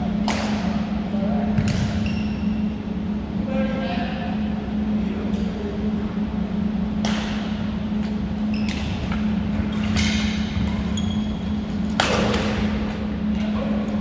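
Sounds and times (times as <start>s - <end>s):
low hum: 0.0s - 14.0s
racket hitting shuttlecock: 0.2s - 0.7s, 7.0s - 7.4s, 11.9s - 12.8s
sneakers squeaking on floor: 1.6s - 2.7s, 8.4s - 11.9s.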